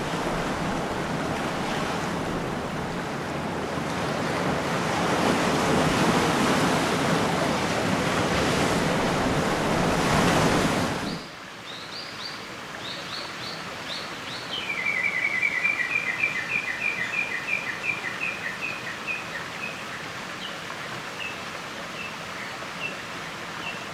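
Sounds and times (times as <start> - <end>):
surf washing on rocky shore: 0.0 - 11.3.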